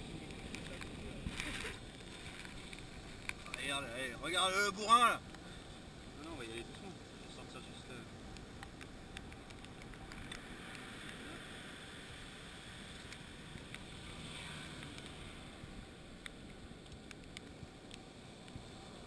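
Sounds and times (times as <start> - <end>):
small clicks and rustles: 0.0 - 4.0, 8.3 - 11.8, 12.6 - 15.4, 16.1 - 19.0
wind: 0.0 - 19.0.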